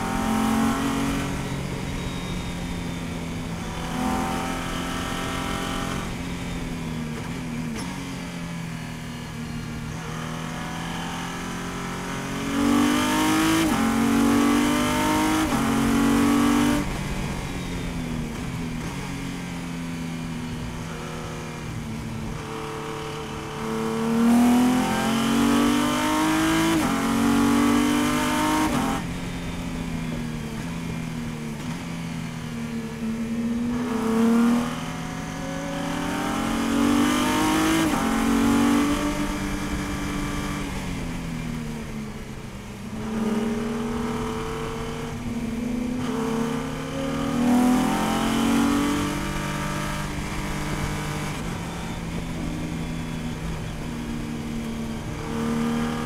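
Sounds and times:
race car engine accelerating: 20.6s - 31.9s.

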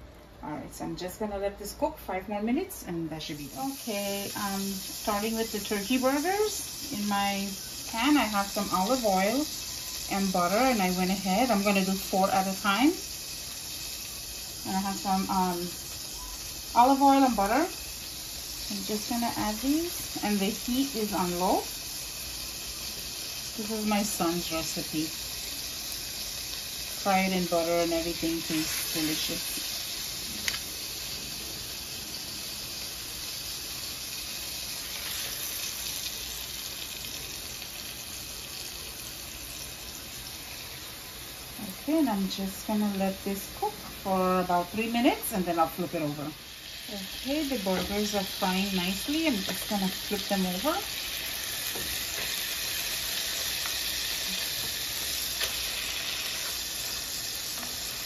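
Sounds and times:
patties sizzling in frying pan: 0.8s - 58.0s.

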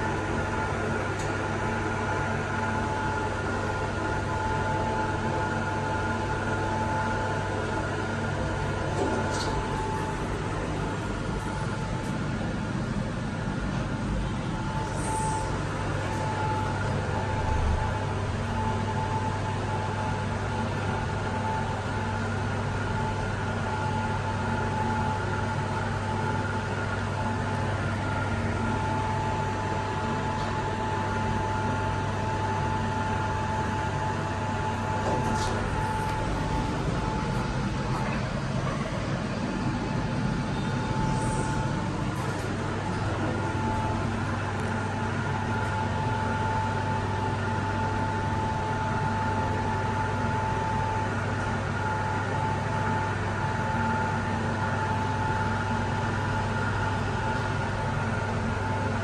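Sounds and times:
elevator low hum: 0.0s - 59.0s
elevator whine: 0.0s - 59.0s
air and ride noise: 2.0s - 19.2s, 32.4s - 54.0s.

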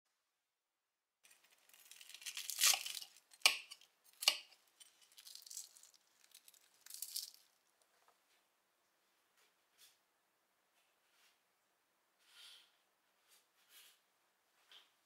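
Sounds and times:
knife cutting crisp batter crust: 1.3s - 7.3s.

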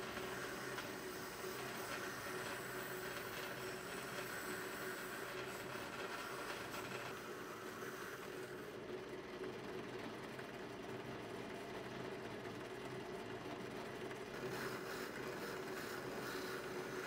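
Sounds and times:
wire wheel scratching metal: 0.0s - 7.2s
drill press motor hum: 0.0s - 17.0s.

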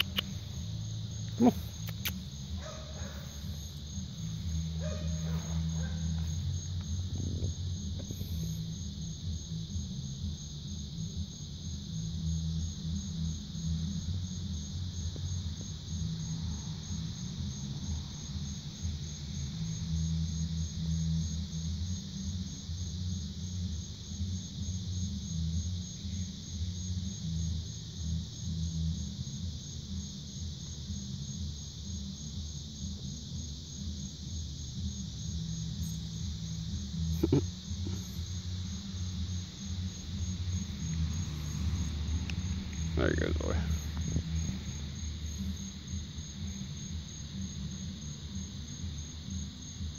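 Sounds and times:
bass of distant music: 0.0s - 49.9s
insects chirping: 0.0s - 49.9s
thudding bass music: 31.3s - 49.9s.

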